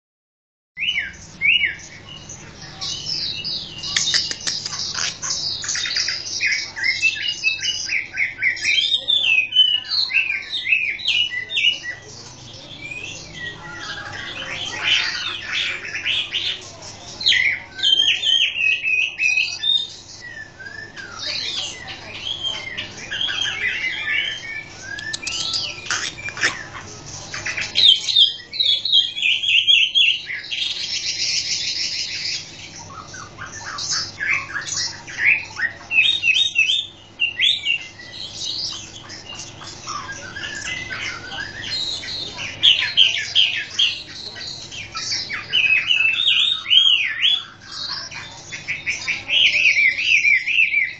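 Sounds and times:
bird singing whistled trills: 0:00.8 - 0:12.1, 0:12.7 - 0:50.9.

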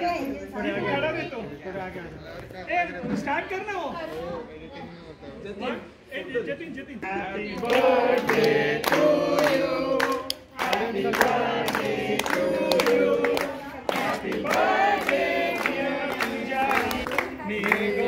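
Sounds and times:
group singing: 0:07.0 - 0:18.0
people clapping: 0:07.4 - 0:18.0.

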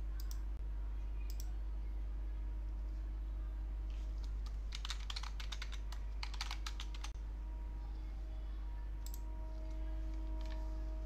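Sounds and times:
low electrical hum: 0:00.0 - 0:11.0
computer keyboard typing: 0:04.2 - 0:07.2.

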